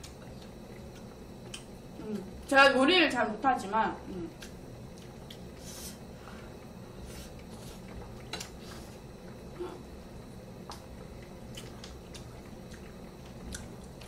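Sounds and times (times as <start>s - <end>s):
person chewing wetly: 0.0s - 1.8s, 4.3s - 5.6s, 7.3s - 9.6s, 10.6s - 14.0s
steady low hum: 0.0s - 14.0s.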